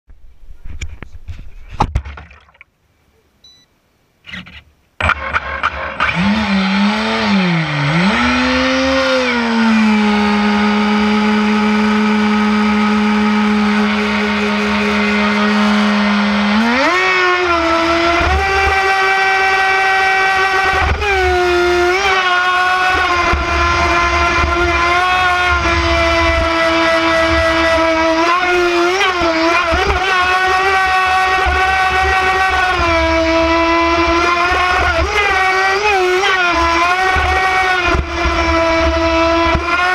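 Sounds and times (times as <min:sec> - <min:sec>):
electric motor whining: 0:06.0 - 0:39.9.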